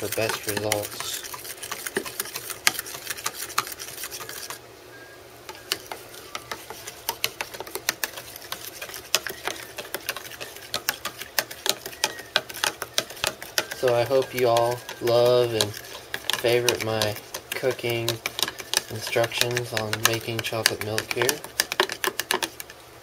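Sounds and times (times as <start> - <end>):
spoon clinking in plastic cup: 9.1 - 22.5.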